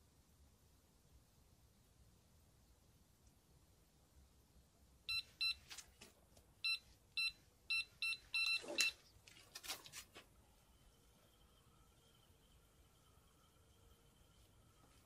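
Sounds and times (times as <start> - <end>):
bite alarm beeps: 6.6 - 9.0.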